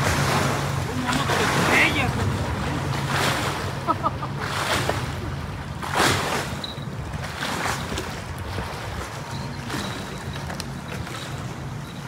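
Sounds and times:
steady low rumble: 0.0 - 12.0
wind buffeting microphone: 4.4 - 12.0.

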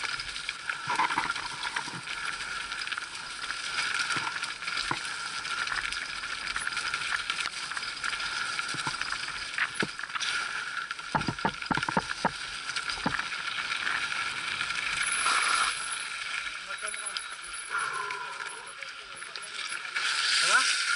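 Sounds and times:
bike knocking and rattling: 0.0 - 10.3, 10.9 - 15.0
rushing noise of bike ride: 0.0 - 20.9.

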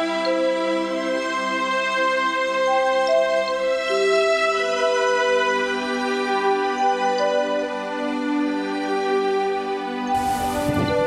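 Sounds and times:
soft sustained background music: 0.0 - 11.0
rustling hiss: 10.1 - 11.0.

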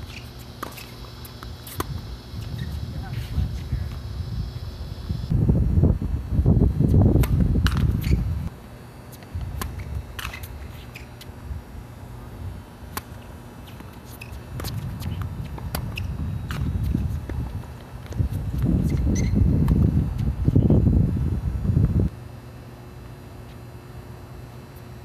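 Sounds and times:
tennis ball bounced and struck: 0.1 - 2.0, 7.2 - 8.2, 9.5 - 11.0, 12.9 - 16.7
wind buffeting microphone: 1.8 - 8.5, 14.4 - 22.1.

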